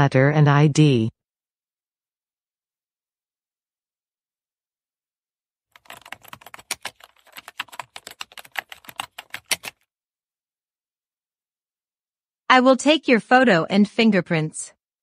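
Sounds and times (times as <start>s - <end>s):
keyboard typing: 5.7s - 9.8s.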